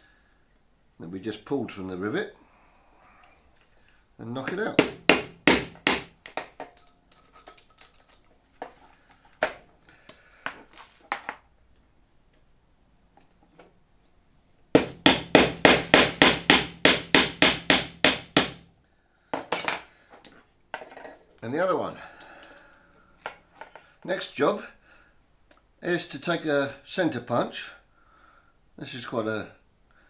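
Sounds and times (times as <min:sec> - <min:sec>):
hammer tapping metal: 0:04.7 - 0:06.9, 0:14.8 - 0:18.6.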